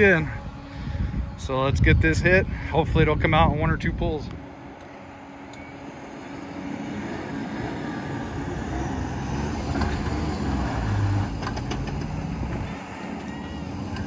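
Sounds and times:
car engine accelerating: 4.4 - 14.0.

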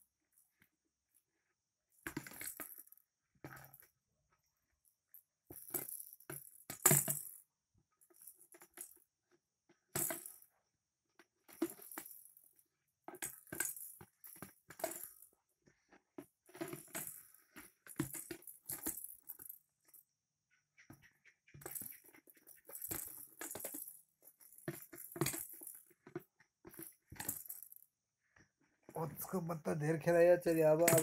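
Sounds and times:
plastic tub clattering: 30.8 - 31.0.

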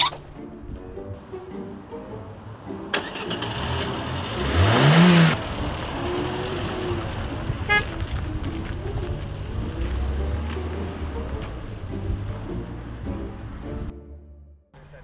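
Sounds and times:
road noise: 0.0 - 14.2, 14.8 - 15.0
car engine revving: 2.6 - 13.9.

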